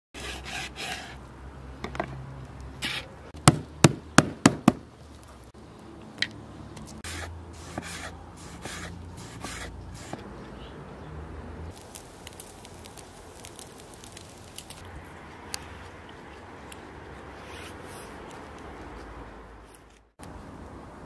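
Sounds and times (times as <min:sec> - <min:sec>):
meat mallet pounding meat: 0:03.4 - 0:04.8
hands rustling meat: 0:11.7 - 0:19.8.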